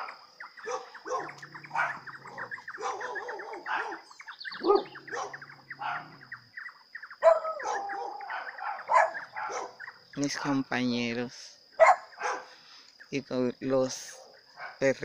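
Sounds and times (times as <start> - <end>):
dogs barking: 0.0 - 6.5, 7.2 - 10.0, 11.8 - 12.6
birds chirping: 0.0 - 15.0.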